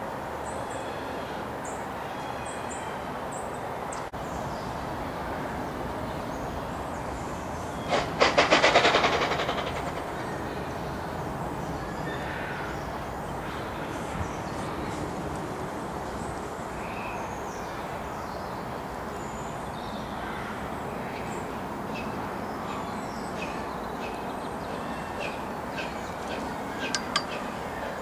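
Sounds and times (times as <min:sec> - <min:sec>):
steam locomotive rumble and hiss: 0:05.0 - 0:11.6.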